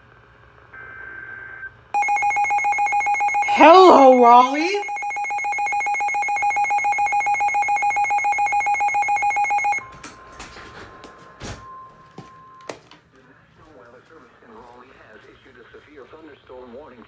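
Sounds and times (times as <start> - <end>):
rapidly pulsing alarm beep: 2.0 - 9.8.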